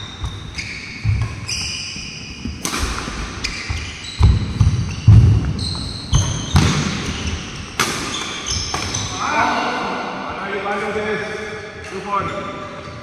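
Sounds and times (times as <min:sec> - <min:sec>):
shoes squeaking on wooden floor: 0:00.0 - 0:09.2
racket hitting shuttlecock: 0:02.5 - 0:09.1.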